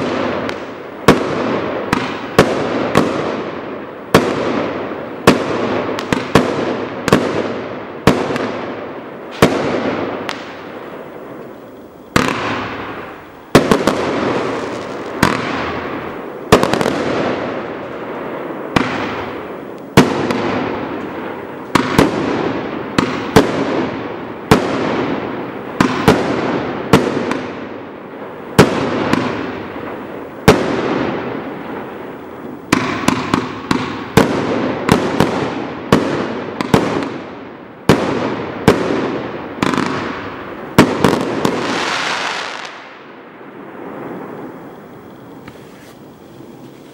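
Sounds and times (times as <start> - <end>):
firework cake bangs: 12.2 - 17.7.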